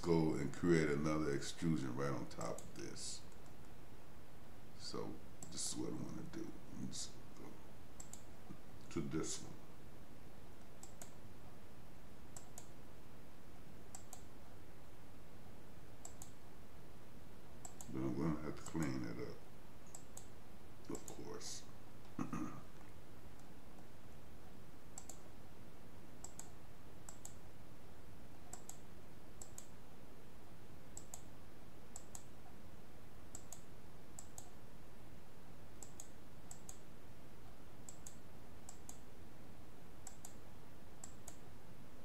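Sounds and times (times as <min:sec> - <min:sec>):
low background hiss: 0:00.0 - 0:42.0
computer mouse clicks: 0:02.5 - 0:03.8, 0:08.0 - 0:08.3, 0:10.6 - 0:11.2, 0:12.3 - 0:12.8, 0:13.9 - 0:14.3, 0:16.0 - 0:16.4, 0:17.6 - 0:18.0, 0:18.6 - 0:18.9, 0:19.8 - 0:20.3, 0:20.9 - 0:21.3, 0:25.0 - 0:25.3, 0:26.2 - 0:27.5, 0:28.3 - 0:29.7, 0:30.9 - 0:31.3, 0:31.9 - 0:32.6, 0:33.3 - 0:34.6, 0:35.8 - 0:36.9, 0:37.8 - 0:39.1, 0:40.0 - 0:40.4, 0:41.0 - 0:41.4.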